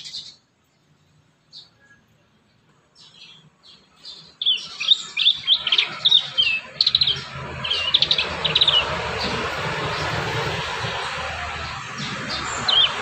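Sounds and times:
bird chirping and trilling: 0.0s - 0.5s, 3.0s - 13.0s
steady rushing noise: 5.4s - 13.0s.

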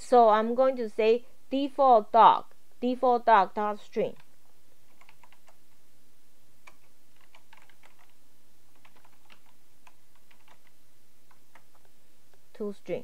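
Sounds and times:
faint low hum: 0.0s - 13.0s
keyboard typing clicks: 4.9s - 5.6s, 6.6s - 11.9s.

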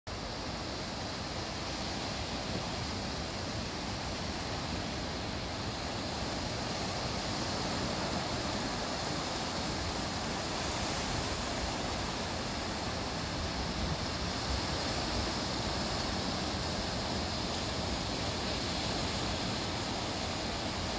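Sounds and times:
ocean waves breaking on beach: 0.1s - 20.9s.

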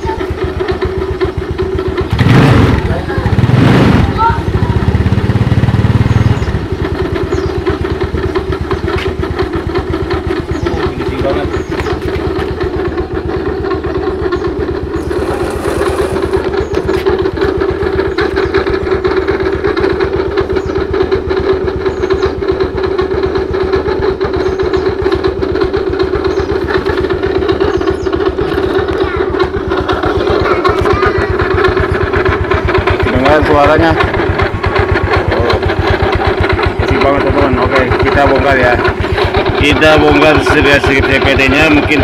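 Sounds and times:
scooter engine idling: 0.0s - 42.0s
rough rubbing noise: 14.6s - 17.8s.

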